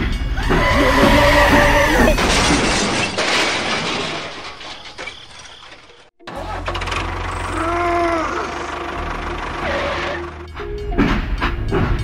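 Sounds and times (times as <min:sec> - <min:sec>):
loud crash of a collision: 0:02.1 - 0:05.9
low engine rumble: 0:06.3 - 0:10.9.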